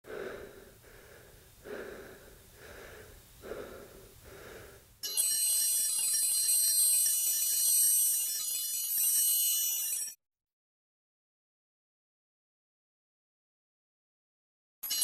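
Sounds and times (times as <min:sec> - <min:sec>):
heavy rhythmic breathing: 0:00.0 - 0:05.0
music with ringing high tones: 0:05.0 - 0:10.2.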